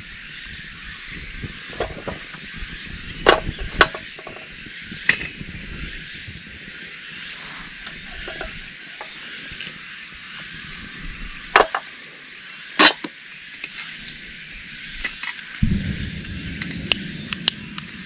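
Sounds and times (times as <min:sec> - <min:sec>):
steady hiss: 0:00.0 - 0:18.0.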